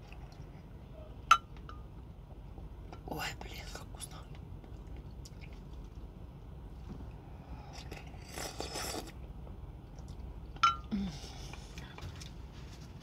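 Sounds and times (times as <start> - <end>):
quiet chewing: 4.1 - 6.1, 7.7 - 12.5
spoon slurp: 7.8 - 9.2.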